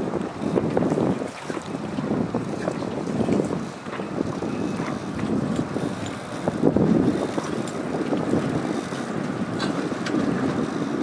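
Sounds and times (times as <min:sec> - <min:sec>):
wind blowing on microphone: 0:00.0 - 0:11.0.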